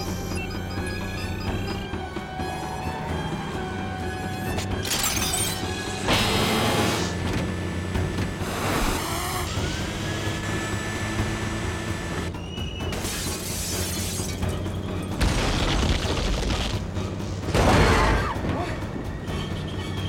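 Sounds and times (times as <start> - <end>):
crashing and shattering effects: 15.2 - 16.9.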